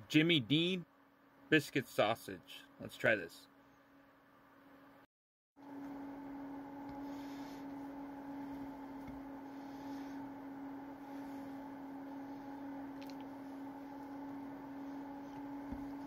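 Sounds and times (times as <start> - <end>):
steady hum: 5.6 - 16.0.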